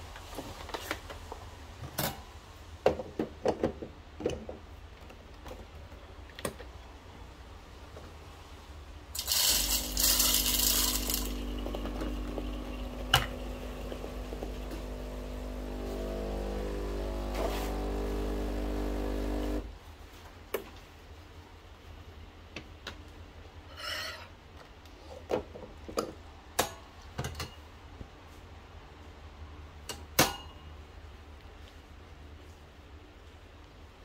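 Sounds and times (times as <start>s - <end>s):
espresso machine pump humming: 9.2s - 19.7s.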